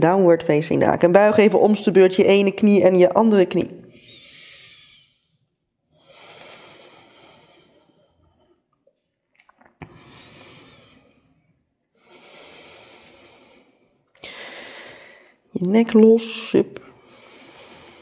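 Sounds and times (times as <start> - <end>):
woman breathing slowly: 3.9 - 8.9, 9.8 - 15.5, 16.8 - 18.0.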